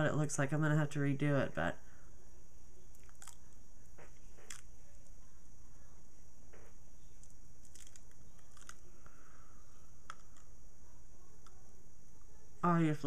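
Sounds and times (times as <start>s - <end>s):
electrical hum and hiss: 0.0s - 13.0s
sticky latex clicks and crackles: 2.9s - 4.8s, 6.5s - 9.0s.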